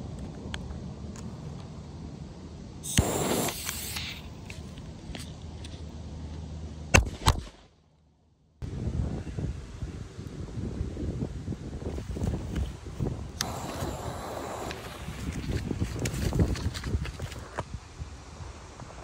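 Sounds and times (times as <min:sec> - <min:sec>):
firecracker crack: 0:02.8 - 0:04.2, 0:13.4 - 0:15.7
hissing: 0:02.8 - 0:04.2, 0:13.4 - 0:15.6.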